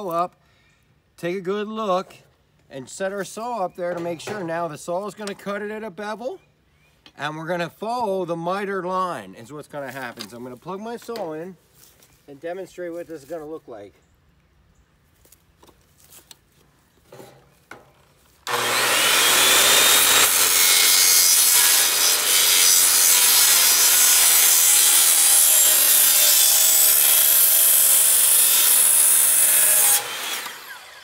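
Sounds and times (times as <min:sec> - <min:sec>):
circular saw cutting wood: 0:18.4 - 0:31.0.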